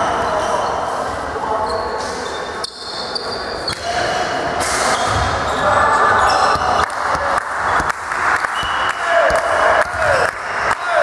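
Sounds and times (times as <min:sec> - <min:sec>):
crowd voices in hall: 0:00.0 - 0:11.0
shoe squeaks on court: 0:01.6 - 0:06.8.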